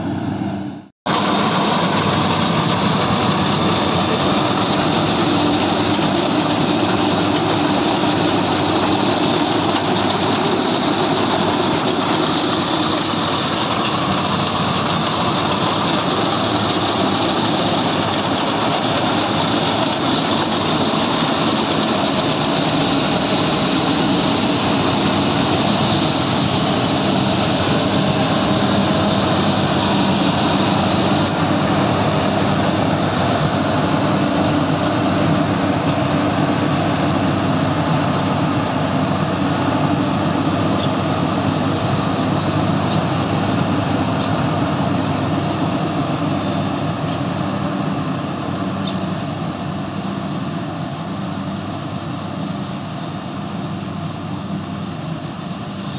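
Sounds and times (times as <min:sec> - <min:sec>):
combine harvester engine drone: 0:00.0 - 0:55.9.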